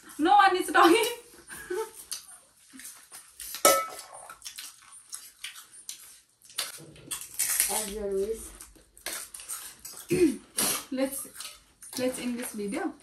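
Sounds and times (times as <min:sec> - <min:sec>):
cutlery and dishes clinking: 0:03.4 - 0:04.4.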